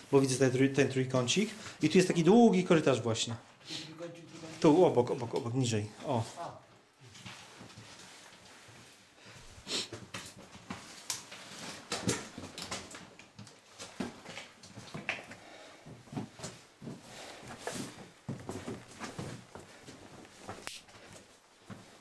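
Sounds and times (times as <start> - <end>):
breathing: 1.5 - 1.8, 9.2 - 10.0, 15.3 - 16.0, 17.0 - 17.7.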